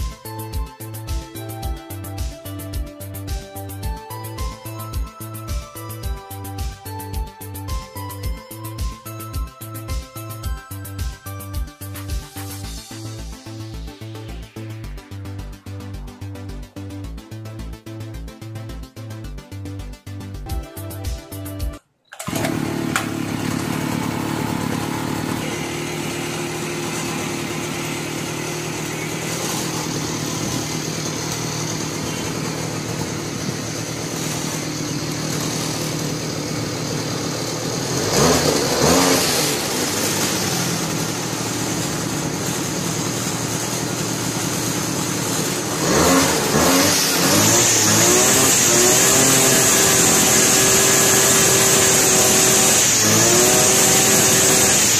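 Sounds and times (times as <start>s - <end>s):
brush cutter engine revving: 22.1s - 54.9s.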